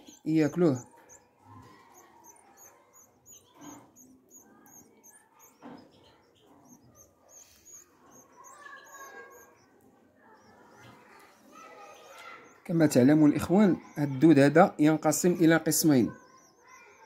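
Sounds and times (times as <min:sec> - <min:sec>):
nestlings cheeping: 0:00.0 - 0:17.0.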